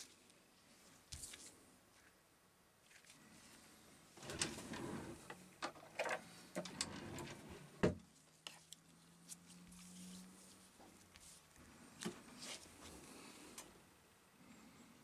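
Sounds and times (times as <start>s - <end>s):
thermal pad sheet rustling: 6.3s - 13.6s.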